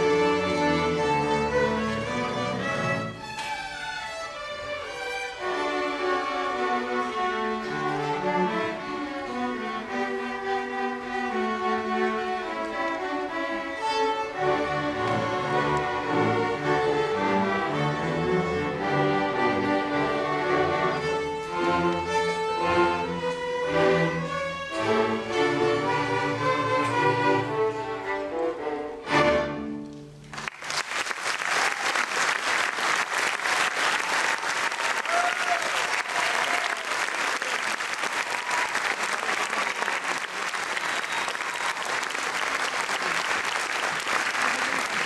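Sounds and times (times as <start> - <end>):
string orchestra playing: 0.0 - 30.5
audience applause: 30.3 - 45.0.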